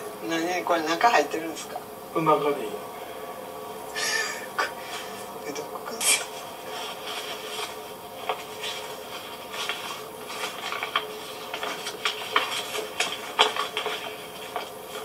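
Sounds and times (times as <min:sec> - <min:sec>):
paper and plastic bag rustling: 0:04.7 - 0:15.0.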